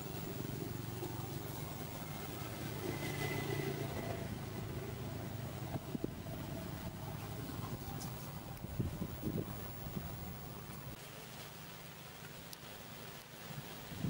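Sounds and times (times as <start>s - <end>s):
engine humming: 0.0s - 11.0s.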